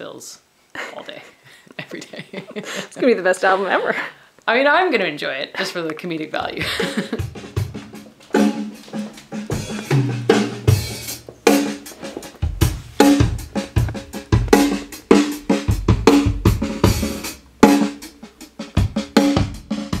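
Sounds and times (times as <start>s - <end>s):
drum kit playing a groove: 6.4s - 20.0s.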